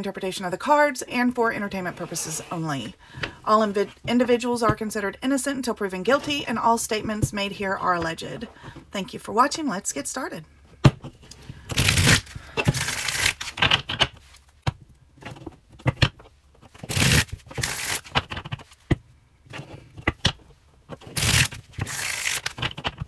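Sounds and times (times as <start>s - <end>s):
cards riffle-shuffled: 11.7s - 14.5s, 15.4s - 18.8s, 19.6s - 23.0s.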